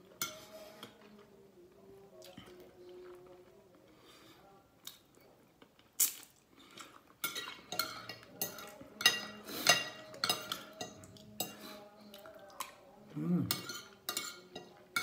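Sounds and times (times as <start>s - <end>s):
cutlery clinking and scraping on plate: 0.1s - 1.2s, 7.2s - 11.9s, 13.4s - 15.0s.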